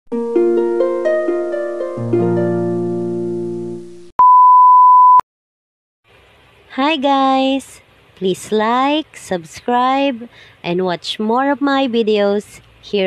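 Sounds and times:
loud steady beep: 4.2s - 5.2s.

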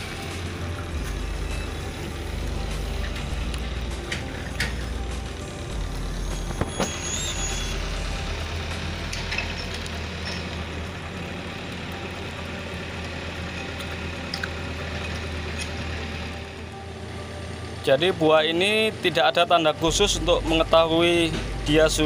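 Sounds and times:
construction machinery engine rumble: 0.0s - 22.0s
brief high chirp: 6.2s - 7.8s.

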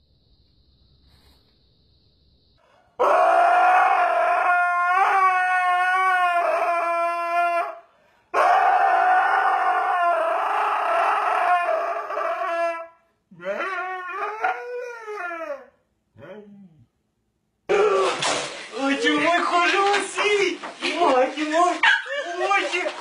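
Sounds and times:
dog howling: 3.0s - 7.8s, 8.4s - 16.8s.

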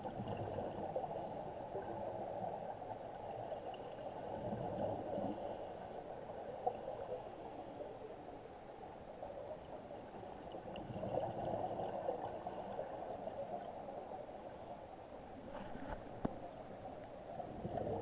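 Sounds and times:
underwater regulator bubbles gurgling: 0.0s - 5.5s, 10.4s - 14.0s, 17.3s - 18.0s.

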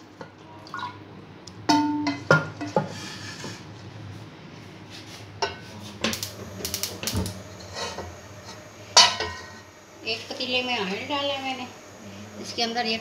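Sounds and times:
metal utensil scraping steel plate: 7.0s - 9.7s.

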